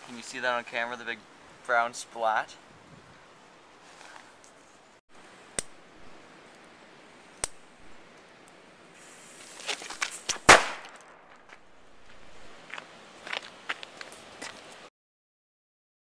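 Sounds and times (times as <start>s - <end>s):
sharp clicks: 7.4s - 7.6s
firework hiss: 8.9s - 10.8s
firework pops: 9.6s - 11.5s
firework bang: 10.3s - 11.5s.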